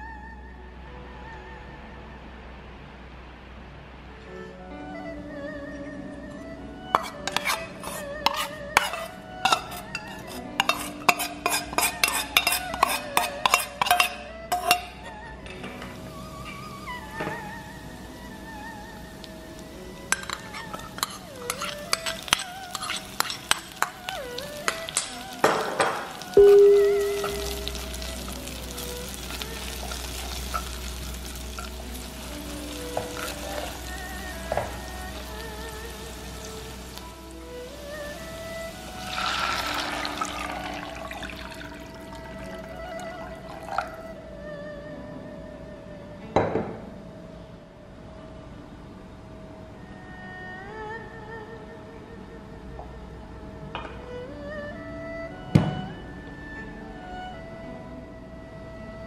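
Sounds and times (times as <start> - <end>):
onion and garlic sizzling in oil: 6.9 - 15.0, 16.0 - 44.1
metal spoon scraping metal bowl: 7.0 - 14.9, 20.1 - 25.1, 26.4 - 32.0.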